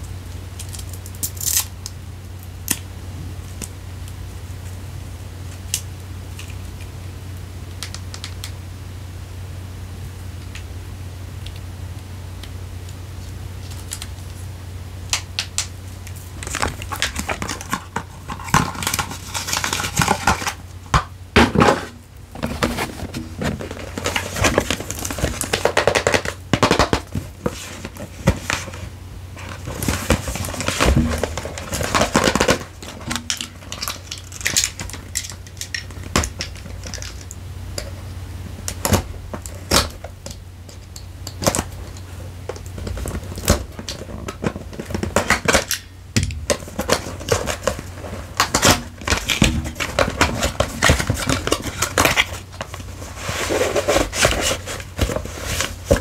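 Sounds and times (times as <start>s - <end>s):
packaging rustling and crinkling: 15.1s - 56.0s.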